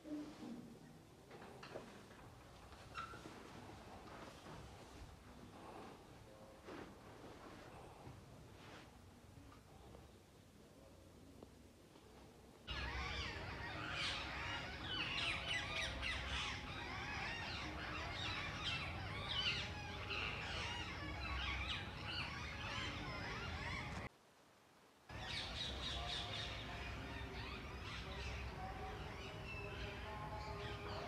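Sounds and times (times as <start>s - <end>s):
birds chirping and calling: 12.7s - 24.1s, 25.1s - 31.0s.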